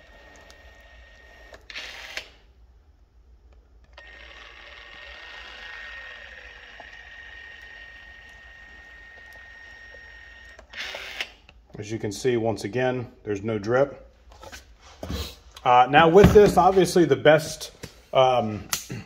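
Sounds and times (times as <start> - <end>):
caulk gun motor whine: 3.8 - 11.6.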